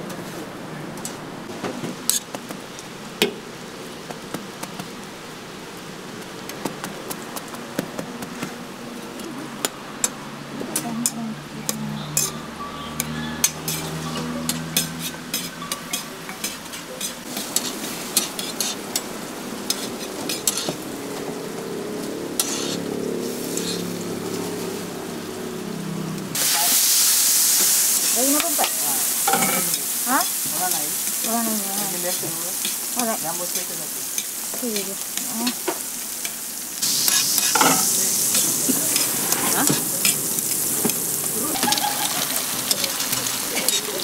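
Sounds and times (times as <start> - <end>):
food sizzling on a griddle: 0.0 - 44.0
metal utensils scraping steel: 10.8 - 19.1, 19.7 - 20.8, 22.4 - 24.6, 28.0 - 35.6, 36.2 - 44.0.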